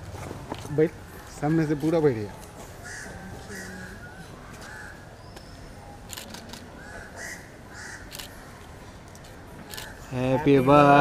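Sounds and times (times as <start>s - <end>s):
crows cawing: 2.8s - 5.1s, 6.8s - 8.4s.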